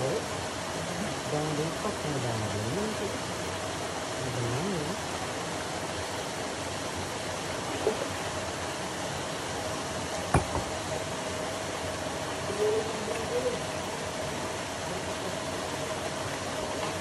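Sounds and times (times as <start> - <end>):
faint steady hum: 0.0 - 17.0
water rushing into pond: 0.0 - 17.0.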